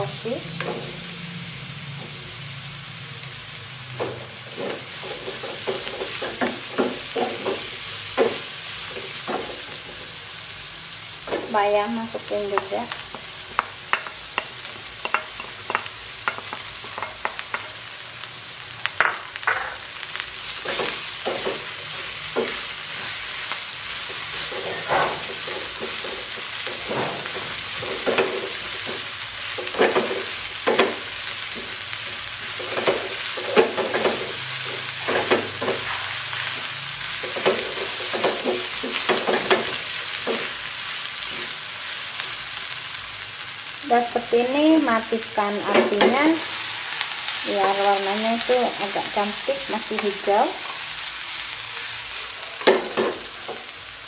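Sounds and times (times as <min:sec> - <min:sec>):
vegetables sizzling in a pan: 0:00.0 - 0:54.0
spatula scraping a pan: 0:20.6 - 0:30.4.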